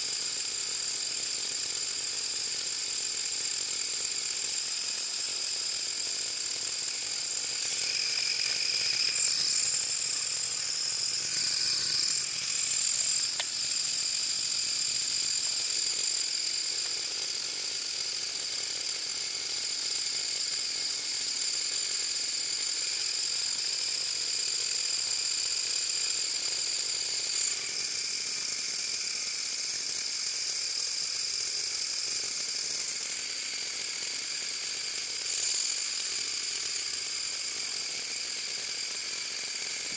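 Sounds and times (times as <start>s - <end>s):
electric motors whining: 6.7s - 17.0s.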